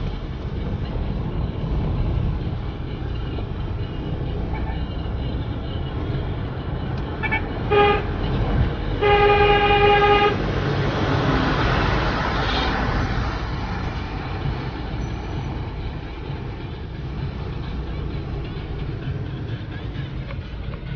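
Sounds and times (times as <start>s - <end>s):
vehicle driving rumble: 0.0s - 20.9s
vehicle horn toots: 7.2s - 10.4s.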